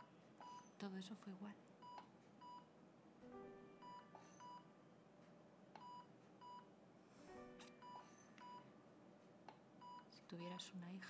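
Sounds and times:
patient monitor beeps: 0:00.0 - 0:01.0, 0:01.8 - 0:02.7, 0:03.7 - 0:04.7, 0:05.8 - 0:06.7, 0:07.5 - 0:08.7, 0:09.8 - 0:10.7.

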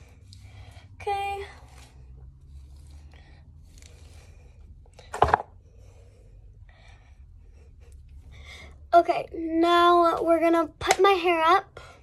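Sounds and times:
hair and fabric rustling: 0:00.0 - 0:05.4.

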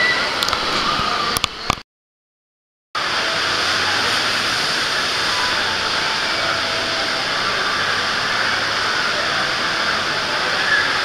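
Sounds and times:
water rushing through flumes: 0:03.0 - 0:11.0.

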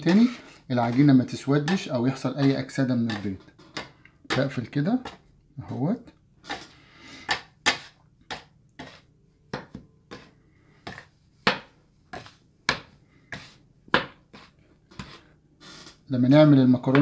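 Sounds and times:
metal scraper scraping on stone: 0:00.0 - 0:05.2, 0:08.8 - 0:09.1.

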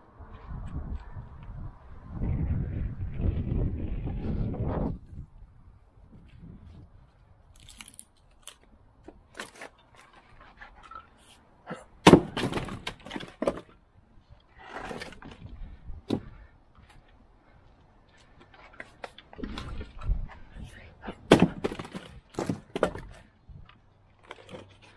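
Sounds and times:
log splitting crack: 0:07.5 - 0:11.0, 0:12.0 - 0:13.7, 0:21.3 - 0:23.3
split wood clattering down: 0:12.0 - 0:13.8, 0:21.3 - 0:23.2
firewood knocking: 0:21.3 - 0:23.1.

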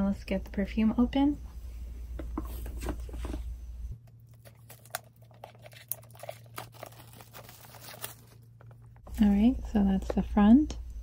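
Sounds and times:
cardboard box and wrapping rustling: 0:04.5 - 0:08.7.

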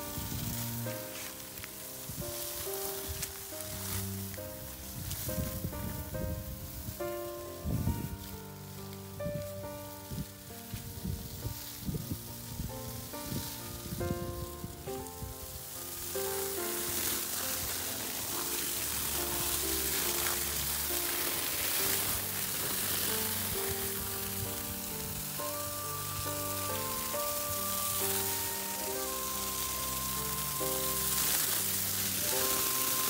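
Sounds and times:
background music of held notes: 0:00.0 - 0:33.0
hose water spraying: 0:00.0 - 0:33.0.

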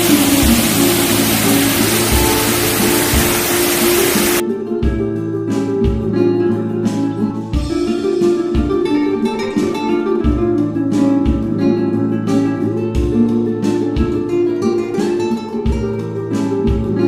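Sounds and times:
low drum beat: 0:00.0 - 0:04.4
acoustic guitar instrumental: 0:00.0 - 0:17.0.

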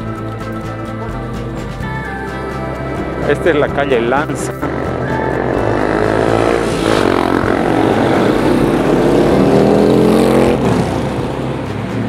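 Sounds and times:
street traffic: 0:00.0 - 0:12.0
car engine accelerating: 0:02.6 - 0:12.0.

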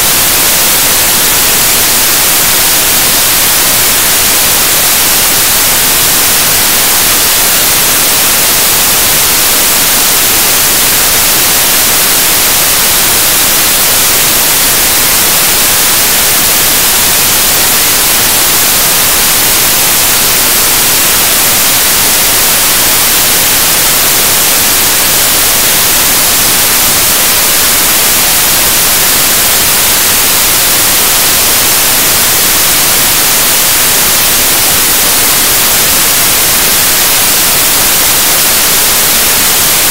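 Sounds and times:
loud static hiss: 0:00.0 - 0:39.9.

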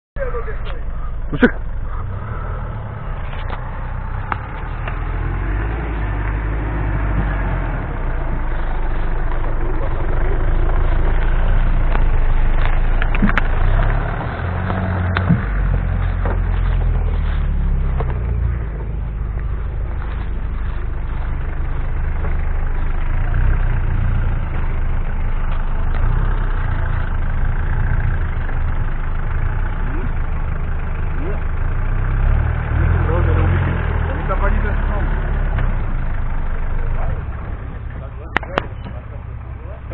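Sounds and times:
pickup truck engine revving: 0:00.2 - 0:39.9
sharp knocks: 0:14.7 - 0:16.4.

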